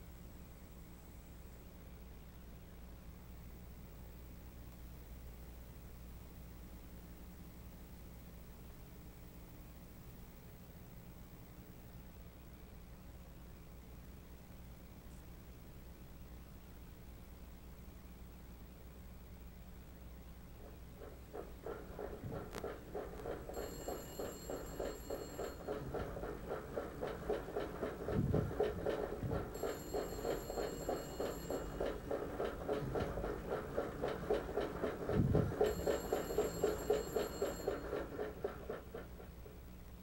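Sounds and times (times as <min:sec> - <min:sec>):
exercise bike flywheel whirring: 0:20.6 - 0:39.6
telephone ringing: 0:23.2 - 0:38.8
heavy knocks: 0:25.5 - 0:36.8.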